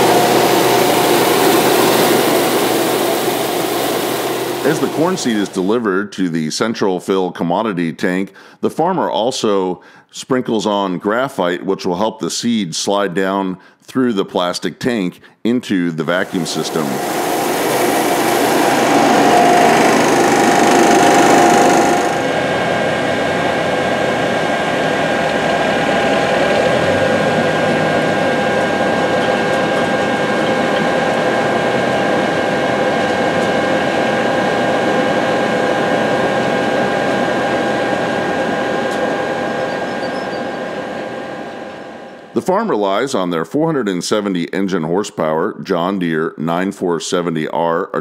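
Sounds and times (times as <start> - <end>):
engine running with whine: 0.0 - 5.7, 16.2 - 42.3.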